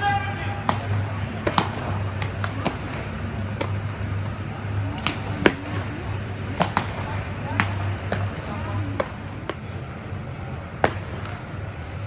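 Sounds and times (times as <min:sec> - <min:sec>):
steady low hum: 0:00.0 - 0:12.0
baseballs smacking into gloves: 0:00.6 - 0:09.8, 0:10.8 - 0:11.5.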